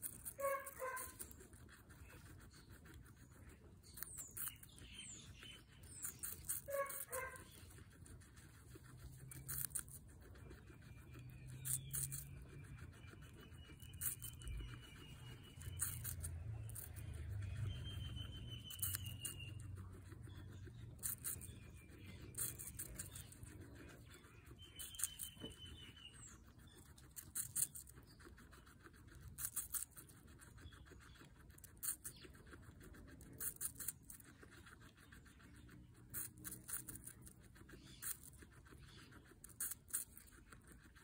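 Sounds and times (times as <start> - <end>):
guinea pig crunching apple: 0.0 - 41.0.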